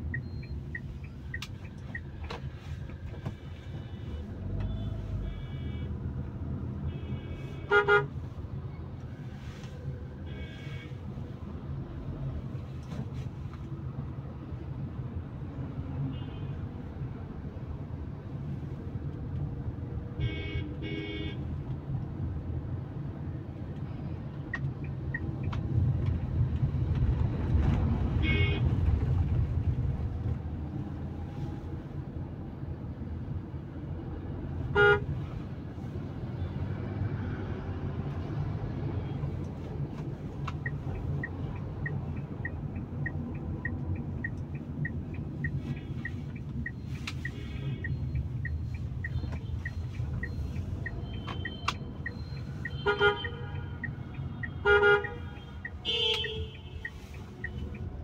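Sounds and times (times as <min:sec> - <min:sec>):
turn indicator ticking: 0:00.0 - 0:03.0, 0:23.5 - 0:30.4, 0:39.2 - 0:58.0
car engine and tyre rumble: 0:00.0 - 0:58.0
vehicle horns honking: 0:03.8 - 0:05.9, 0:06.9 - 0:08.2, 0:20.2 - 0:21.4, 0:34.7 - 0:35.1, 0:52.6 - 0:57.0.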